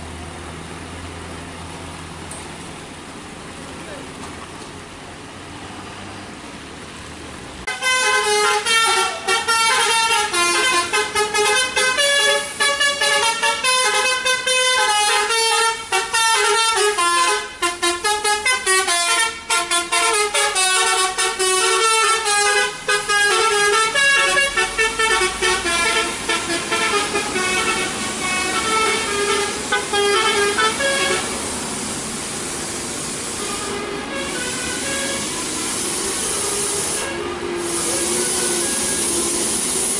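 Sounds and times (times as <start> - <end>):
road noise: 0.0 - 39.9
musical air horn playing a tune: 7.7 - 31.5, 33.2 - 39.9.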